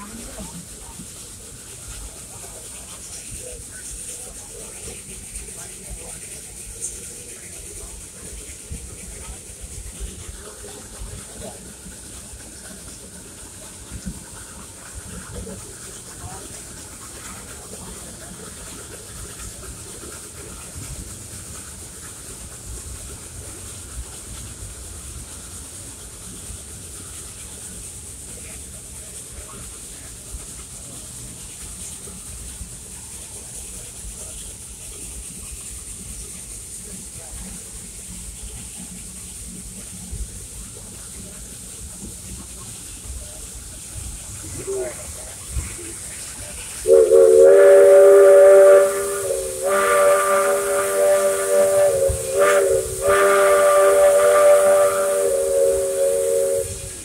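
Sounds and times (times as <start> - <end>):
steam hiss: 0.0 - 57.0
train rumbling on track: 0.0 - 57.0
steam locomotive chime whistle: 46.8 - 57.0.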